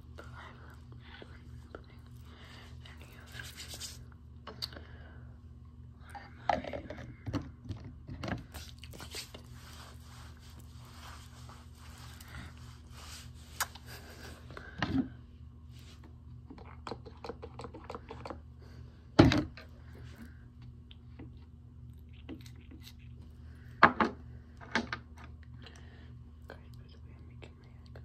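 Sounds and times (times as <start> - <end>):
faint steady hum: 0.0 - 28.0
rustling and scraping against recorder: 8.4 - 13.7.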